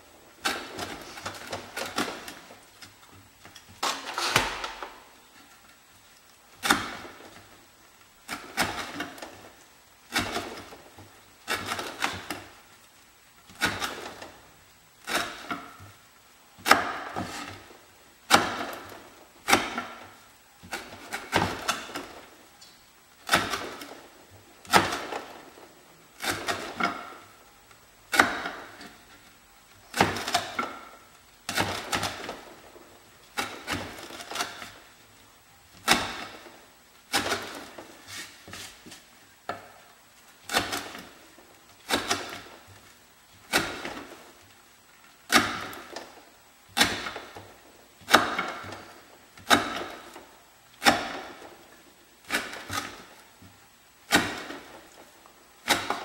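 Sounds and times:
knife chopping rope on wood: 6.6 - 7.2, 10.1 - 10.8, 11.5 - 12.4, 13.5 - 14.3, 15.1 - 15.8, 16.6 - 17.6, 18.3 - 20.0, 20.6 - 22.2, 23.2 - 24.0, 24.6 - 25.3, 26.2 - 27.2, 28.1 - 29.0, 29.9 - 30.9, 31.5 - 32.4, 35.8 - 36.5, 37.1 - 39.7, 40.5 - 41.1, 41.8 - 42.8, 43.5 - 44.2, 45.3 - 46.1, 46.8 - 47.4, 48.1 - 50.2, 50.8 - 51.5, 52.3 - 53.5, 54.1 - 54.8, 55.6 - 56.0.

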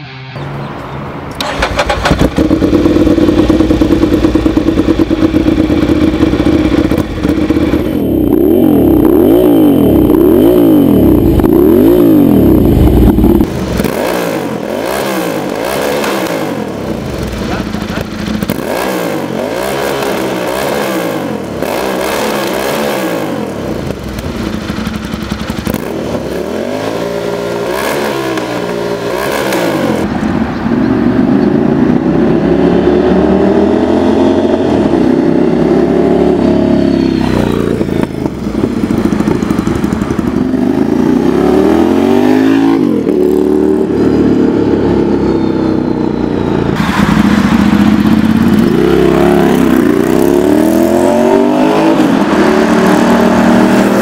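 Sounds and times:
motorcycle engine revving: 1.4 - 54.0.

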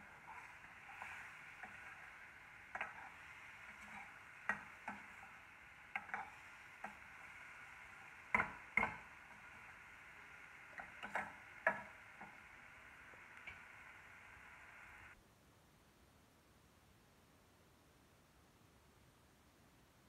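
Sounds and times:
faint frying sizzle: 0.0 - 15.2.

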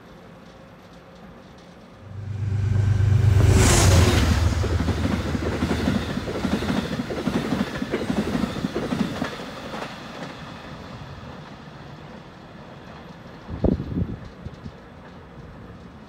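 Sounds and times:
diesel locomotive drone: 2.0 - 8.5.

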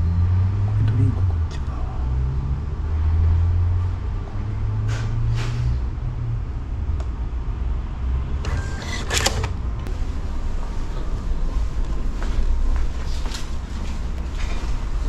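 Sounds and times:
steady low hum: 5.8 - 15.0
kiosk clicks: 8.4 - 9.8.

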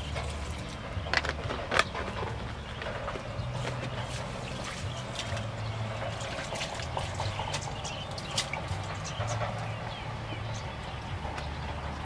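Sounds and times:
water splashing in a metal bowl: 0.0 - 2.7, 3.4 - 9.8
low hum: 0.0 - 12.0.

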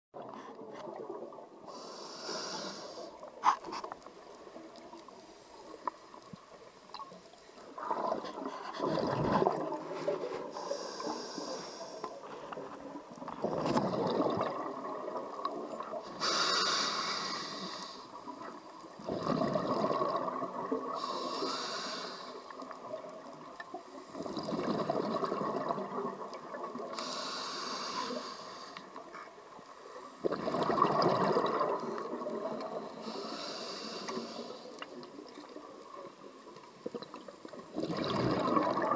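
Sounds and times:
hissing regulator inhale: 1.7 - 3.2, 10.5 - 12.3, 16.1 - 18.2, 20.9 - 22.5, 27.0 - 29.0, 33.0 - 34.8
exhaust bubbles rushing: 37.8 - 38.9.

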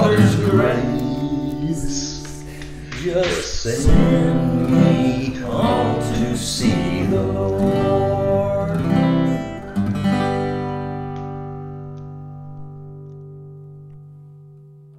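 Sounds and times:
person singing: 0.0 - 9.8
acoustic guitar strumming: 0.0 - 14.9.

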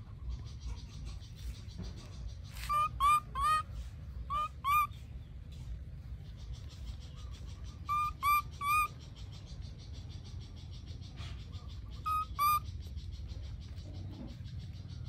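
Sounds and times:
baby monkey coo calls: 0.6 - 5.0, 6.8 - 9.6, 10.8 - 15.0.

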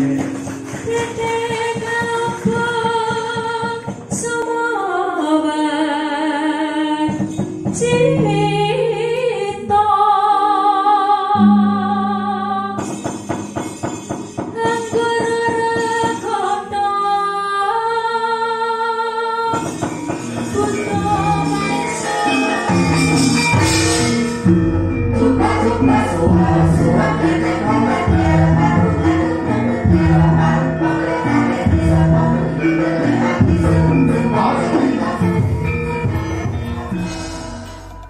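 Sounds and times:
gamelan accompaniment: 0.0 - 3.2, 11.3 - 16.7, 19.6 - 38.0
rapid metallic percussion: 0.0 - 4.6, 7.0 - 9.7, 12.6 - 16.8, 19.5 - 38.0
woman singing into a microphone: 0.8 - 13.2, 14.4 - 23.1, 25.1 - 36.1.

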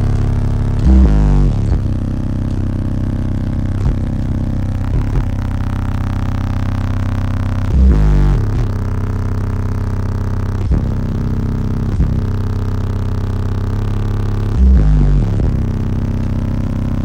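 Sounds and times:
loud bass hit: 0.0 - 9.2
deep bass music from subwoofers: 0.0 - 17.0.

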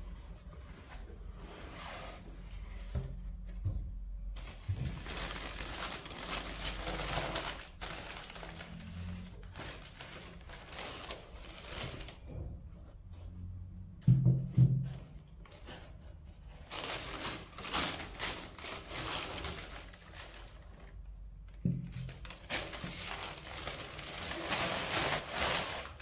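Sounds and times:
paper packaging crinkling: 4.4 - 12.2, 16.5 - 21.2, 21.8 - 26.0.

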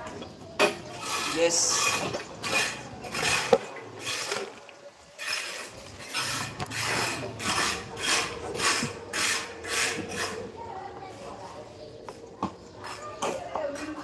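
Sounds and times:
trowel scraping mortar in bucket: 0.6 - 10.6.

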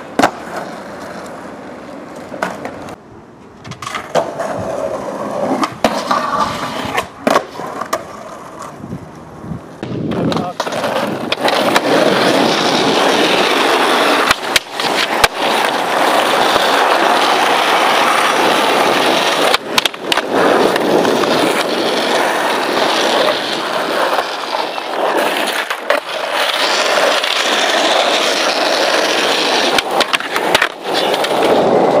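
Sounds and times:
skateboard clacking on ground: 0.0 - 32.0
skateboard wheels rolling on asphalt: 0.0 - 32.0.

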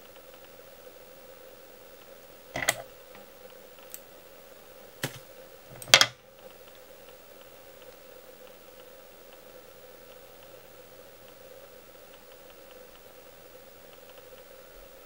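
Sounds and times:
faint steady hum: 0.0 - 15.0
sharp clicks and knocks: 2.6 - 2.9, 5.0 - 6.2.

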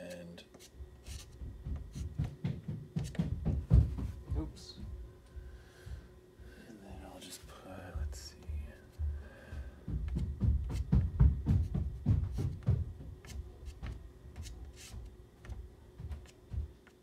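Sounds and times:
pastel stick scratching on board: 0.5 - 2.1, 13.2 - 16.4.

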